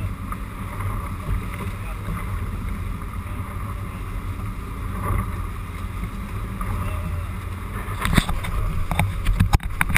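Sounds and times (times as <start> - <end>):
boat engine droning: 0.0 - 9.9
wind and water rushing: 0.0 - 9.9
sharp knocks and clicks: 8.0 - 9.9.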